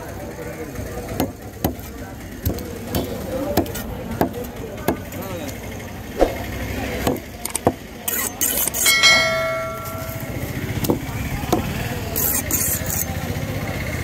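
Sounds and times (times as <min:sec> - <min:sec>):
ringing metallic tone: 0:08.8 - 0:10.9.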